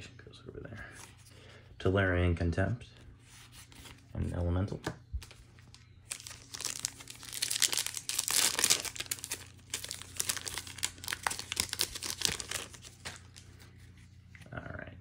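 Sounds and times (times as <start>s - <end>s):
foil wrapper tearing and crinkling: 5.6s - 13.5s.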